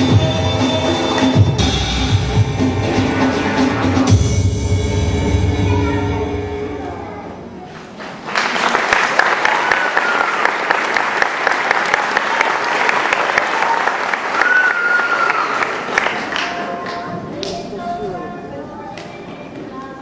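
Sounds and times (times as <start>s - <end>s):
dance music: 0.0s - 6.7s
audience applauding: 8.0s - 17.1s
people cheering: 8.3s - 16.8s.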